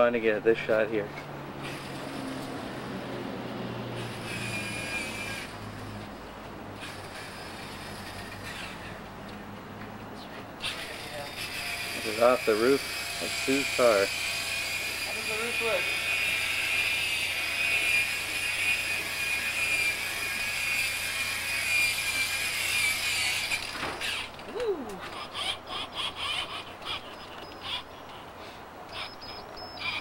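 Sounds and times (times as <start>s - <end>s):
electric car buffer whining: 3.9s - 6.1s, 10.7s - 24.4s.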